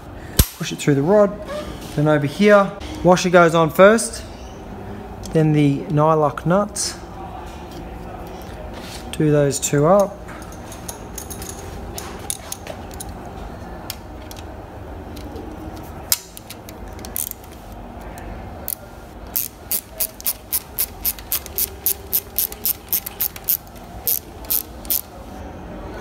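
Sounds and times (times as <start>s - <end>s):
ratchet spanner clicking: 18.7s - 25.1s.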